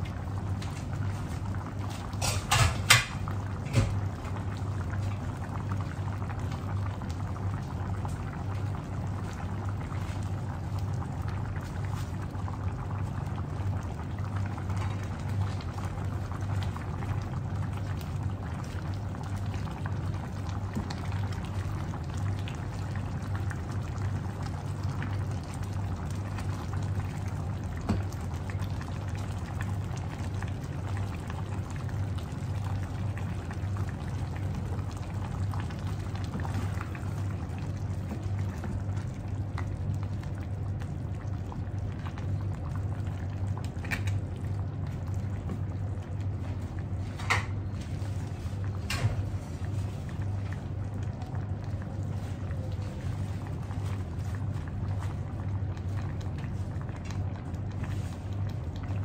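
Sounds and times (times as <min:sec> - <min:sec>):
stew bubbling in a pan: 0:00.0 - 0:59.0.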